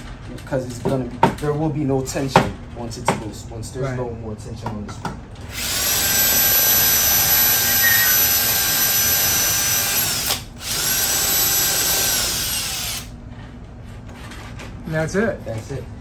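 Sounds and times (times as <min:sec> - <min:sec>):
cordless drill whining: 0:05.5 - 0:13.1.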